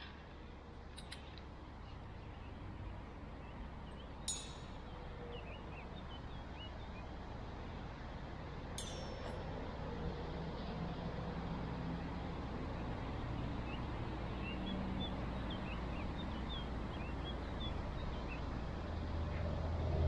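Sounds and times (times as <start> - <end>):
distant road traffic rumble: 0.0 - 20.0
small birds chirping: 13.6 - 18.4.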